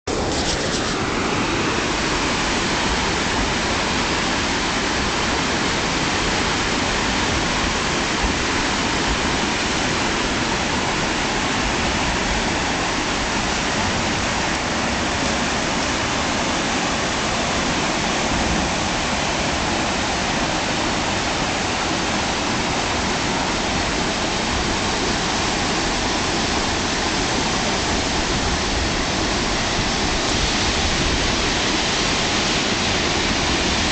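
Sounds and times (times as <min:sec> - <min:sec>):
whitewater rushing: 0:00.1 - 0:33.9.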